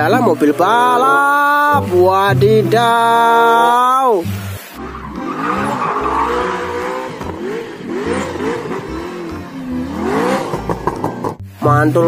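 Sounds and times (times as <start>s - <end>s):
car engine revving: 4.2s - 12.0s
tyre squeal: 4.8s - 7.2s.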